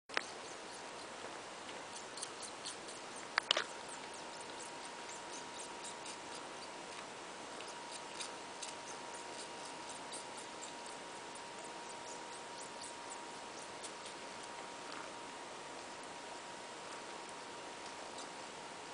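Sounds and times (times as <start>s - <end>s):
kitten sucking clicks: 1.9s - 11.0s, 12.2s - 15.0s.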